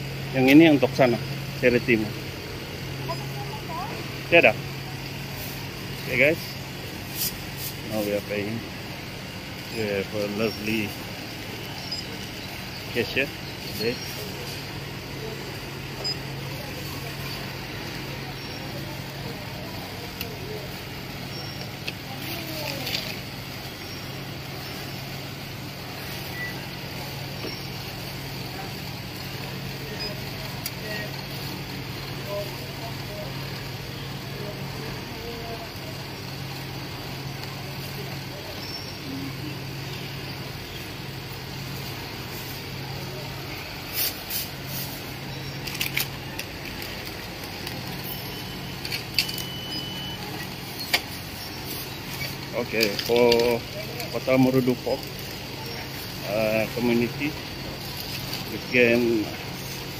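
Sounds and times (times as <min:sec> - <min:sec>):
constant low hum: 0:00.0 - 0:59.9
murmur of voices: 0:00.0 - 0:59.9
thin steady high tone: 0:00.0 - 0:59.9
faint short beep: 0:26.2 - 0:26.7, 0:48.1 - 0:51.0.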